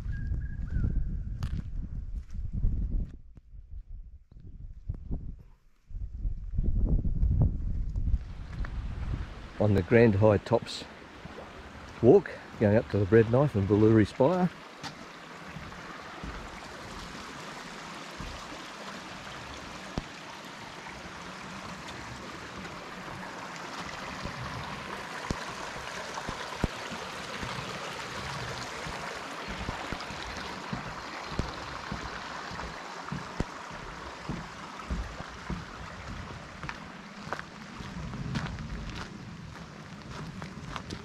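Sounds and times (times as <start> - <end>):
creek running over rocks: 8.0 - 41.0
light knocks and thumps: 14.8 - 17.2, 18.1 - 18.6, 25.3 - 36.8.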